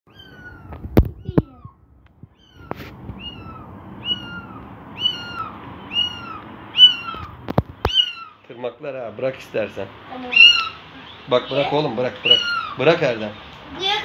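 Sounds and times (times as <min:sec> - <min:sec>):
kitten mewing: 0:00.1 - 0:08.4, 0:10.2 - 0:10.8, 0:11.6 - 0:12.8.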